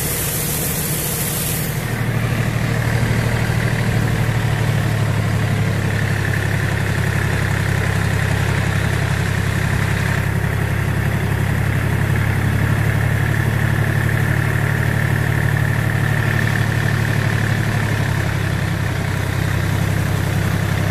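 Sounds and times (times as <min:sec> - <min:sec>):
steady high whine: 0:00.0 - 0:05.8
tractor diesel engine running: 0:00.0 - 0:20.9.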